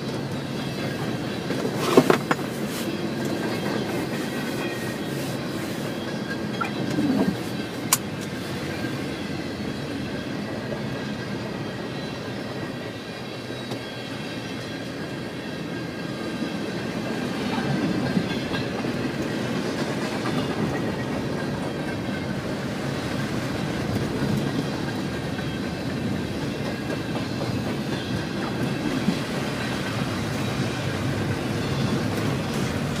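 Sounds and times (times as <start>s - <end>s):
freight train rolling on track: 0.0s - 33.0s.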